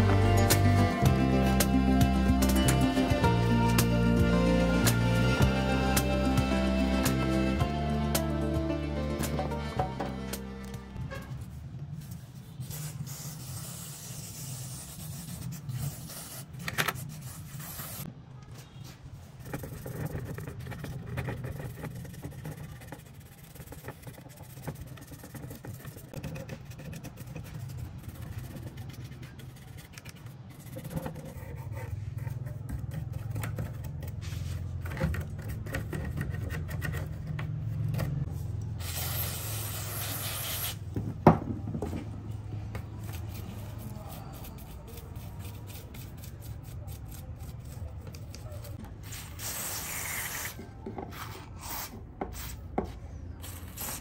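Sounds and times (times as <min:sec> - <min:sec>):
brush scrubbing circuit board: 0:19.3 - 0:40.4.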